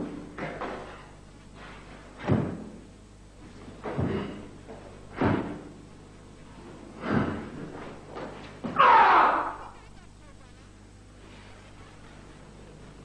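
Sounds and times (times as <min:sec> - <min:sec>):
person shouting: 0:08.8 - 0:09.8.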